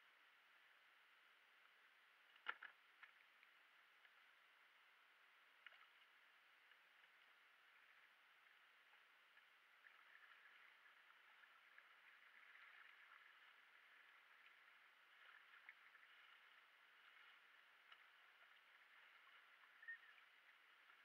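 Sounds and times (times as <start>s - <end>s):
light ticks: 2.3s - 4.3s, 5.5s - 7.4s, 17.8s - 21.0s
water lapping against hull: 5.4s - 21.0s.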